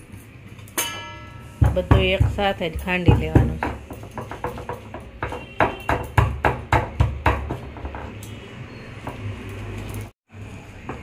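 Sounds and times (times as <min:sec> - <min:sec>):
pestle pounding in stone mortar: 0:01.6 - 0:08.2.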